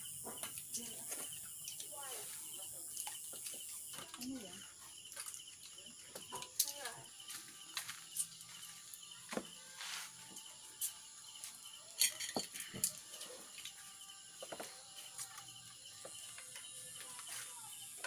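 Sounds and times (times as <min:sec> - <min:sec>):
insect trill: 0:00.0 - 0:18.0.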